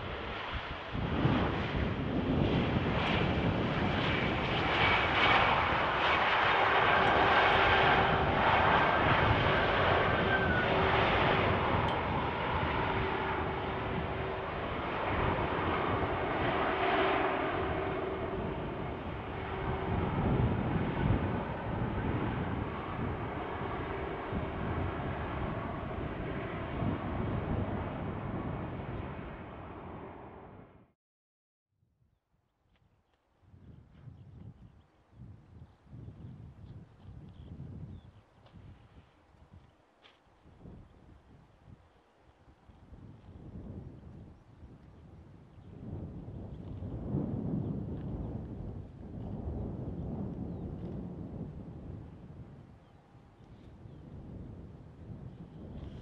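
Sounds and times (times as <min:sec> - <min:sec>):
jet engines running: 0:00.0 - 0:30.8.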